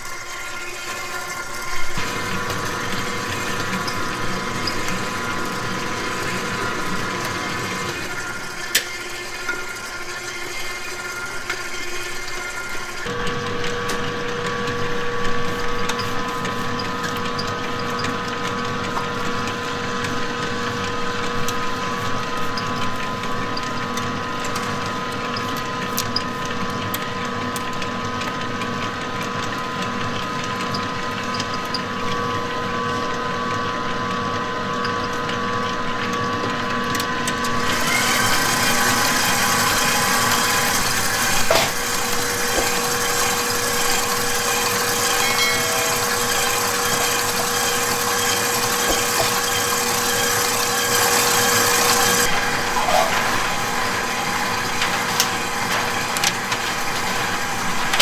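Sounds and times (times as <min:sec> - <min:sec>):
stand mixer motor whine: 0:00.0 - 0:58.0
whisk beating batter in metal bowl: 0:37.6 - 0:53.4.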